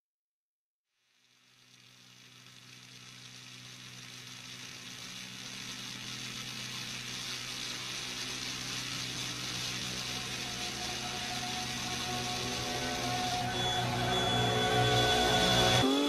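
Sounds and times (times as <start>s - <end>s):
droning hum and hiss: 1.0s - 15.8s
high held tones: 4.4s - 16.0s.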